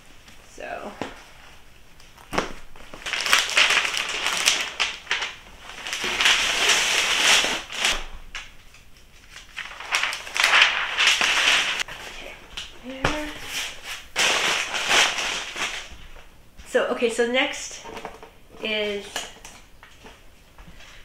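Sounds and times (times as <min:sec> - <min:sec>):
crinkly packaging rustling: 0:00.2 - 0:16.3.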